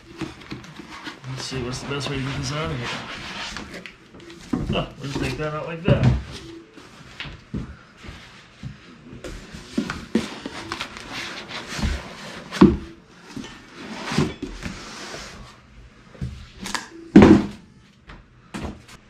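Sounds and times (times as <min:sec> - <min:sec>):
foam scraping and rustling: 0:00.9 - 0:03.8.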